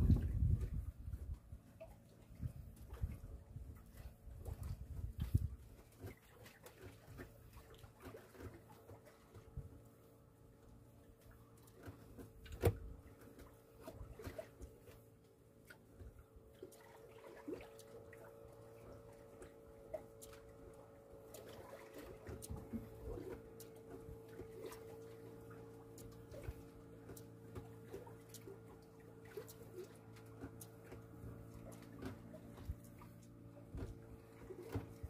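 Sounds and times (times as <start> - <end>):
faint boat motor hum: 0.0 - 35.0
water splashing and dripping: 11.2 - 15.0, 15.6 - 35.0.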